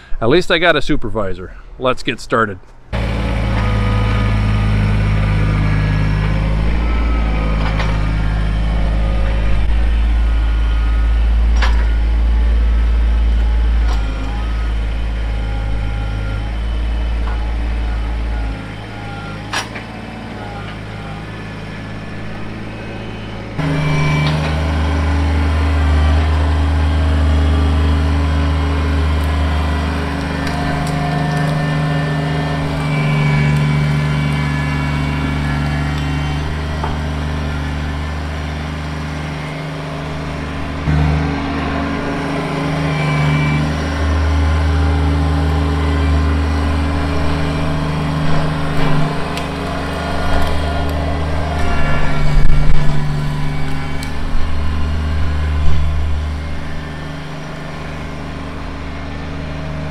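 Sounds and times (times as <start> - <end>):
tractor diesel engine running: 2.6 - 59.9.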